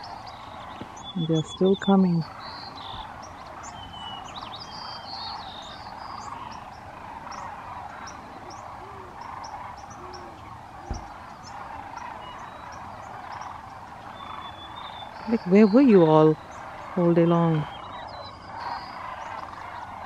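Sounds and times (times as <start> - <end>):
cranes and ducks calling: 0.0 - 20.0
brief thump: 10.9 - 11.1.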